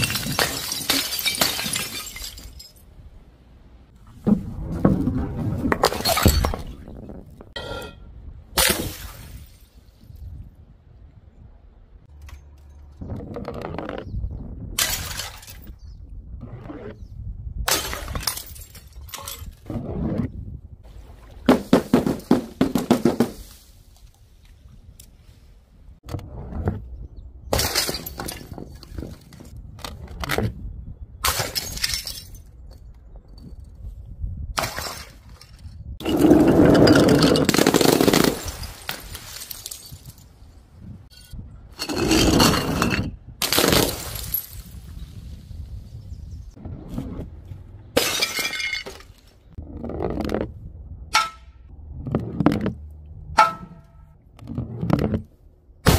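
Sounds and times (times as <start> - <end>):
objects crashing on paving: 0.0 - 2.8, 21.5 - 23.7, 34.6 - 40.2, 41.8 - 44.7
glass breaking: 0.0 - 2.9, 14.8 - 15.7, 17.7 - 19.5, 27.5 - 28.7, 31.3 - 32.5, 36.1 - 40.2, 48.0 - 49.2.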